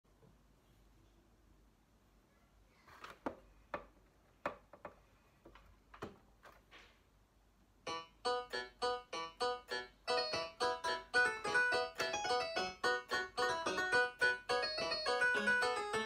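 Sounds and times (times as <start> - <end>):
electronic keyboard piano notes: 7.8 - 16.0.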